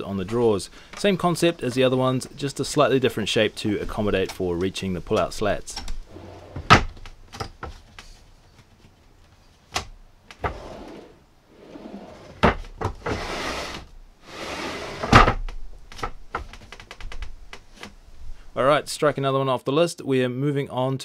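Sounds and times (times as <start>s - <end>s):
drawer slides rolling: 6.1s - 7.0s, 10.4s - 15.4s
drawers knocking shut: 6.1s - 7.7s, 10.4s - 13.8s, 14.8s - 15.5s.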